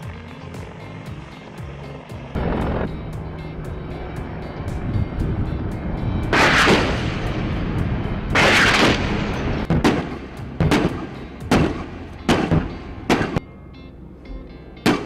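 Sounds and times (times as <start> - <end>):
helicopter rotor drone: 0.0 - 14.8
explosions and gunfire bangs: 8.4 - 13.4.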